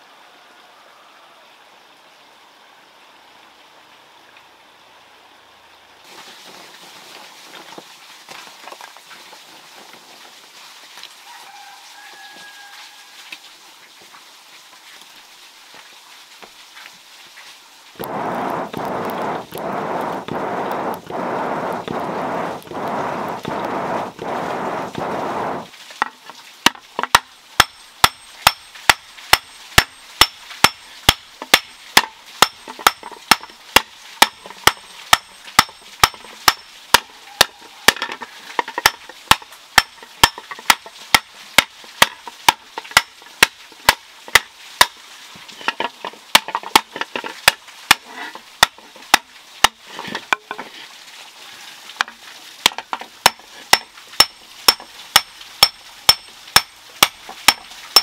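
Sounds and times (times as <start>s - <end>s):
hammer striking hot iron: 18.0s - 25.6s, 26.7s - 38.0s, 38.8s - 44.9s, 53.2s - 58.0s.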